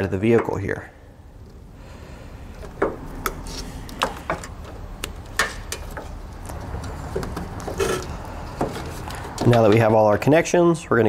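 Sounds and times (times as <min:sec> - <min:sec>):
wires and connectors clicking: 0:02.5 - 0:09.9.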